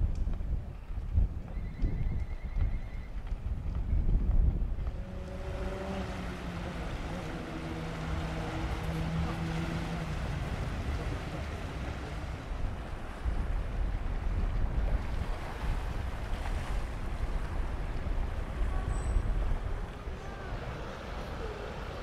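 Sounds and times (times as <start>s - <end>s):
wind buffeting microphone: 0.0s - 22.0s
small waves washing over rocks: 5.3s - 18.8s.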